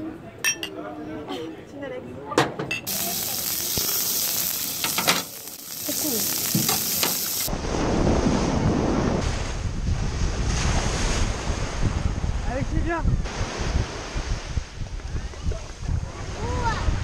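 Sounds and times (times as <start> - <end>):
seafood sizzling on a griddle: 2.9 - 7.5
wind buffeting microphone: 7.4 - 17.0.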